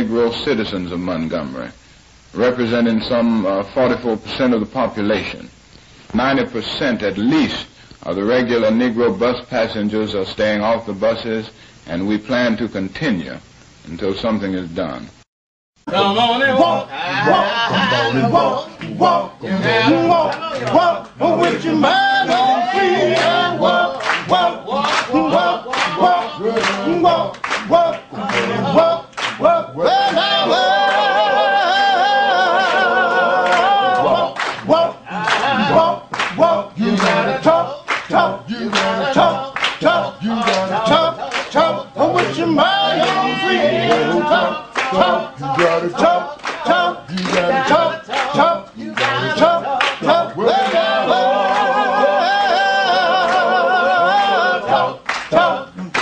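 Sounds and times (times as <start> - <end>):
group singing: 15.8 - 56.0
rhythmic handclapping: 17.9 - 56.0.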